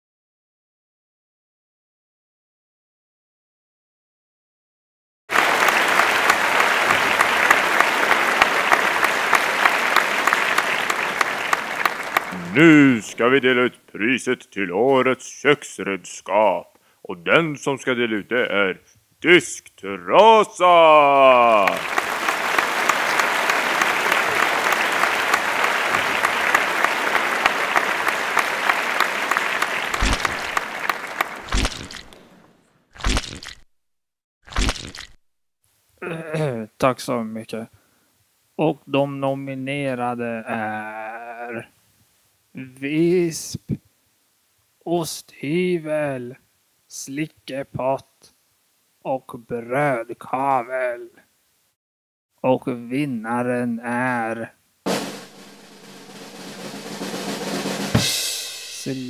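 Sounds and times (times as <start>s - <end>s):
large audience applauding: 5.3s - 13.2s, 20.7s - 32.5s.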